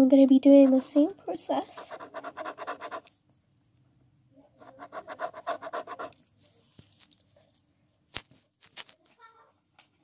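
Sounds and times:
pen scratching on paper: 0:00.7 - 0:03.1, 0:04.6 - 0:06.2.

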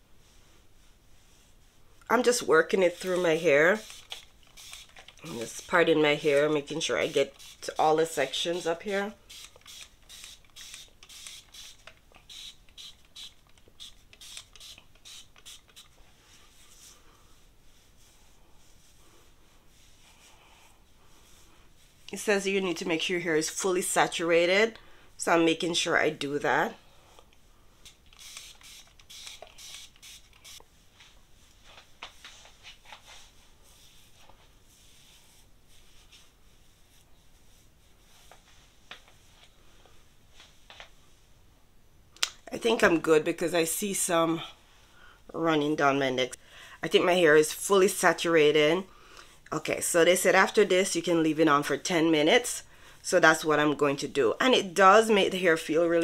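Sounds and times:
fingers rustling through hair: 0:00.2 - 0:41.3
spray bottle spritzing: 0:03.0 - 0:05.8, 0:07.2 - 0:07.8, 0:09.2 - 0:16.0, 0:27.8 - 0:30.6.

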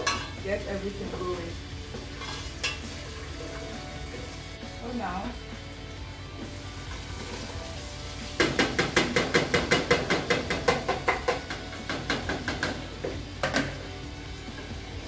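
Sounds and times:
metal spoon knocking on pot: 0:00.0 - 0:00.4, 0:08.4 - 0:13.8.

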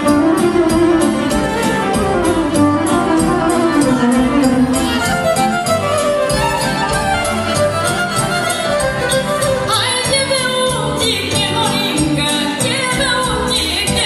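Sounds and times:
fiddle melody: 0:00.0 - 0:12.0
band playing folk dance music: 0:00.0 - 0:14.0
woman singing: 0:09.7 - 0:14.0.

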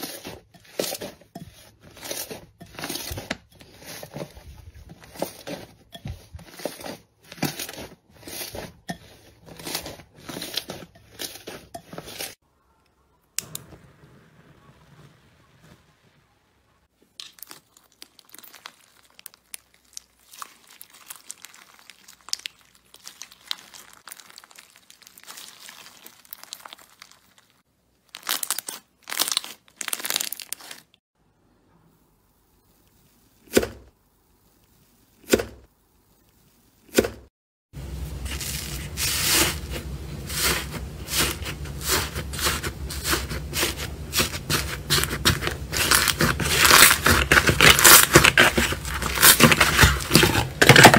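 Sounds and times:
slime crackling and crinkling: 0:00.0 - 0:12.4, 0:16.8 - 0:31.0, 0:37.8 - 0:50.9.

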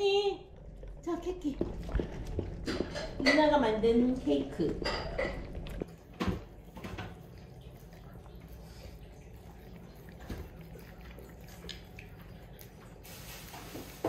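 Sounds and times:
dog licking and smacking: 0:04.8 - 0:13.7.

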